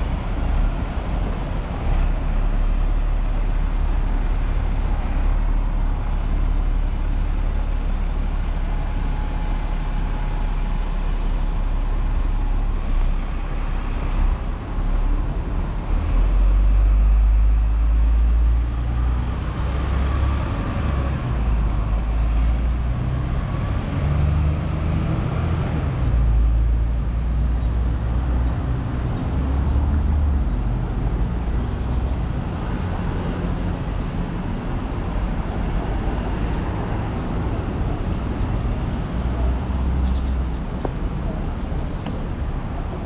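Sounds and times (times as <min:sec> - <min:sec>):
road traffic rumble: 0:00.0 - 0:43.0.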